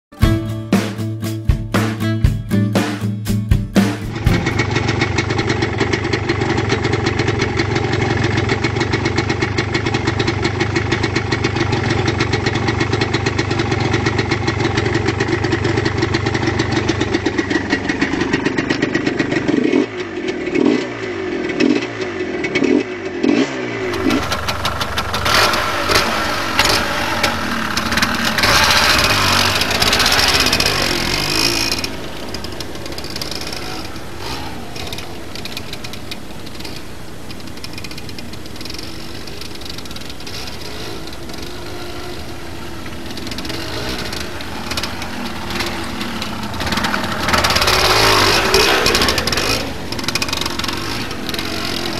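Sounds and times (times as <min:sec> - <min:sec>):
two-stroke motorcycle engine revving: 0:03.8 - 0:51.9.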